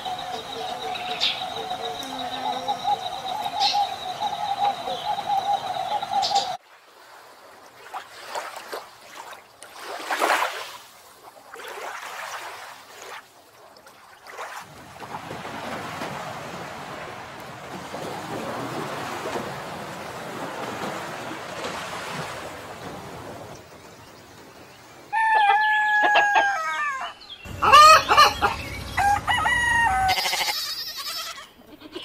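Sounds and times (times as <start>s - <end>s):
bird calls: 0.0s - 6.6s, 23.3s - 32.0s
surf and wind: 0.0s - 13.3s, 14.2s - 30.2s.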